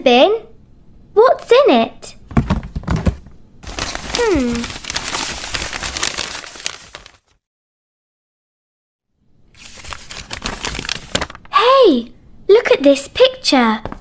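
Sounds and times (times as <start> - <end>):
paper crumpling and rustling: 2.8 - 7.4, 9.6 - 11.5.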